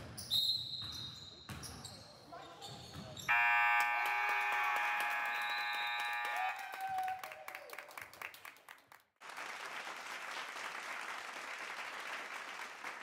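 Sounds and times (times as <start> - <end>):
shoe squeaks: 0.2 - 3.3
scoreboard buzzer: 3.3 - 6.6
applause: 3.3 - 13.0.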